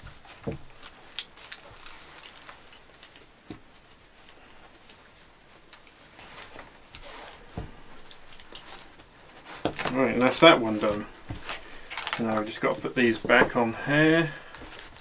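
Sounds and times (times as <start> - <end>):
webbing straps and buckles clicking: 0.0 - 15.0.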